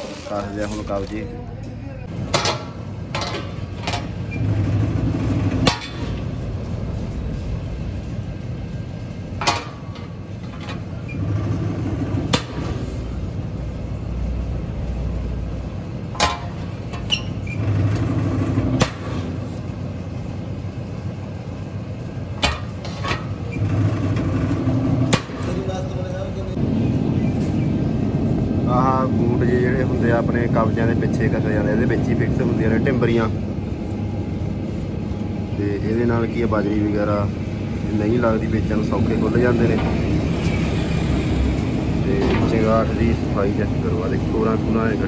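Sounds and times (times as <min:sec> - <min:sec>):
punch press humming: 0:02.1 - 0:25.9
metal clanking: 0:02.3 - 0:06.8, 0:09.3 - 0:13.0, 0:16.0 - 0:19.7, 0:22.3 - 0:26.2.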